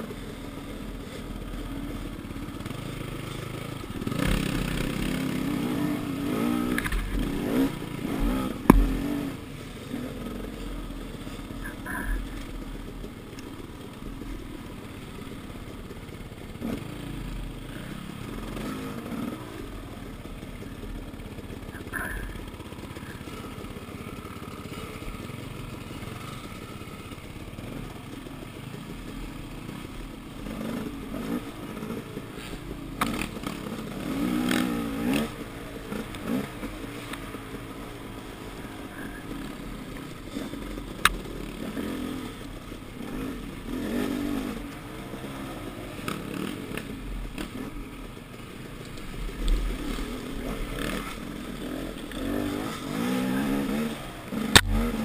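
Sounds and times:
dirt bike engine revving: 0.0s - 55.0s
sharp clicks: 54.5s - 54.9s.

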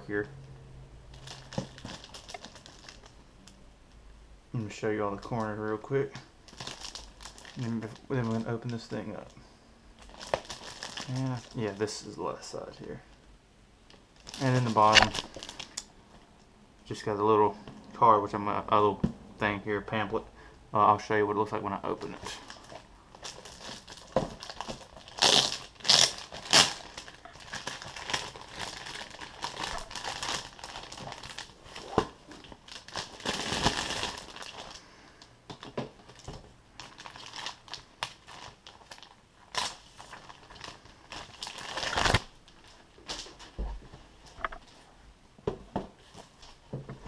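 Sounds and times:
plastic shrink wrap tearing: 1.1s - 3.1s, 6.5s - 9.3s, 10.0s - 11.8s, 13.9s - 15.9s, 21.9s - 34.8s, 35.5s - 43.5s
plastic crackling: 1.1s - 3.6s, 5.2s - 9.4s, 10.0s - 13.2s, 13.9s - 15.9s, 21.9s - 43.6s.

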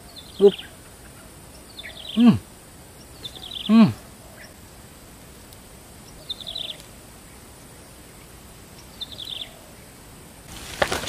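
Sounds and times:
bird calling: 0.0s - 11.0s
steady background hiss: 0.0s - 11.0s.

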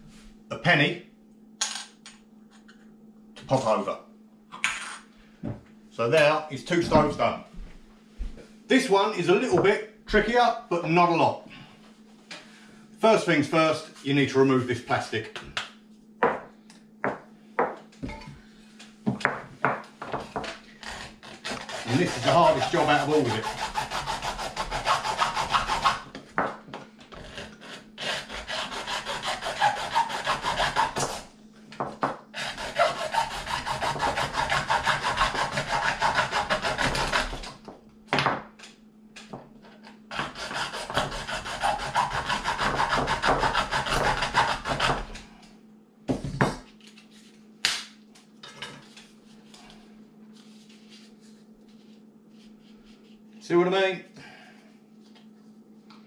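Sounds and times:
hacksaw cutting plastic: 20.8s - 26.1s, 27.1s - 31.2s, 32.4s - 37.6s, 40.1s - 45.2s.

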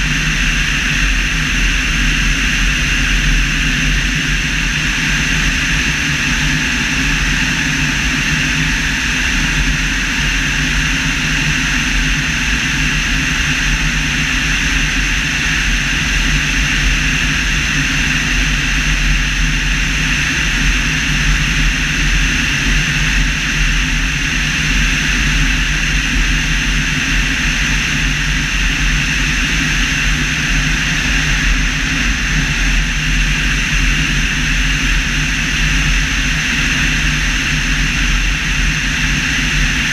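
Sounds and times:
low aircraft hum: 0.0s - 39.9s.

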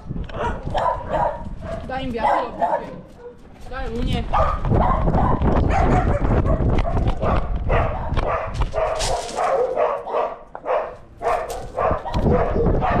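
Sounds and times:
harness and camera rumbling: 0.0s - 13.0s.

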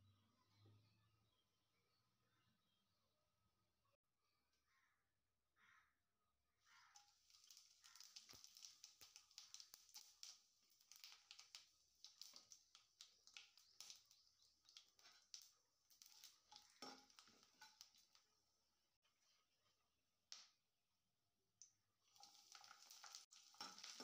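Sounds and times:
spices sizzling in hot oil: 6.8s - 18.4s, 22.0s - 24.0s.

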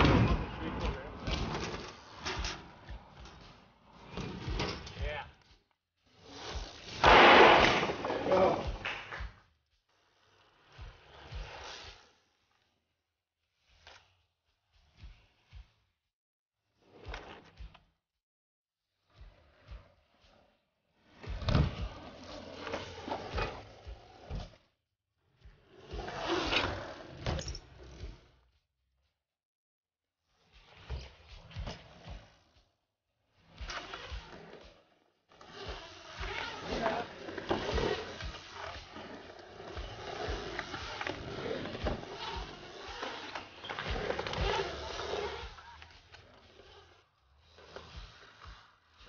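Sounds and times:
bike tyres rolling over ramp: 0.0s - 5.3s, 6.1s - 12.7s, 19.0s - 24.6s, 25.5s - 28.4s, 33.4s - 49.0s.

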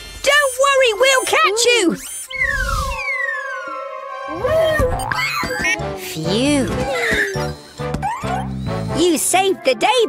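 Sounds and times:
cartoon falling whistle: 0.3s - 5.9s.

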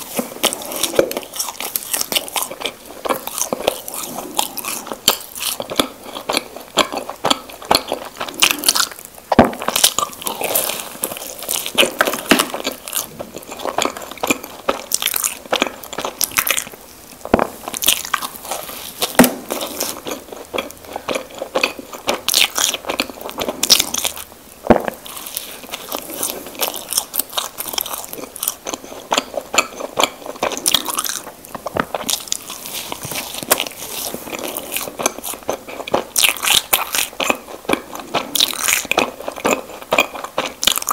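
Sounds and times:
chewing mouth sounds: 0.0s - 16.8s, 24.9s - 40.9s.

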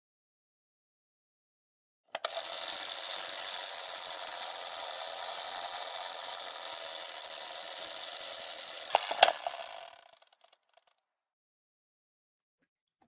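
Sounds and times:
film projector rattling: 2.2s - 10.9s.

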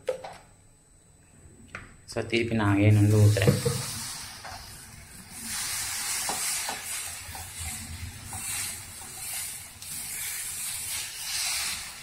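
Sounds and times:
ladle scraping hiss: 2.9s - 12.0s
batter sizzling on griddle: 3.0s - 12.0s.

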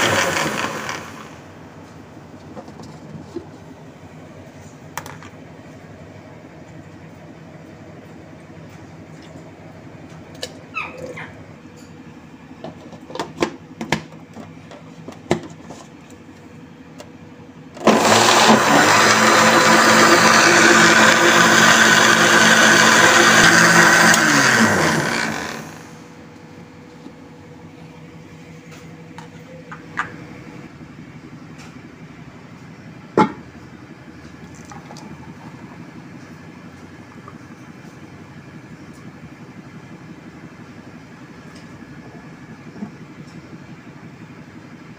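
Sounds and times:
blender motor running: 0.0s - 1.4s, 17.8s - 26.0s.

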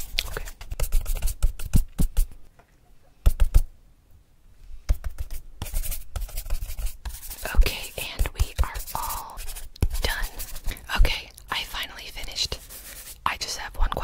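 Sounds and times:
drawing tool scratching paper: 5.0s - 10.7s, 12.5s - 13.2s.

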